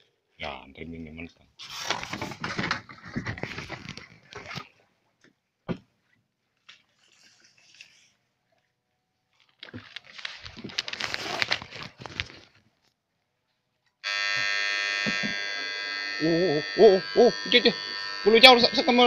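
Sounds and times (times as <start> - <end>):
rustling and knocking: 1.8 - 4.6
high-pitched electric buzzing: 14.0 - 19.0.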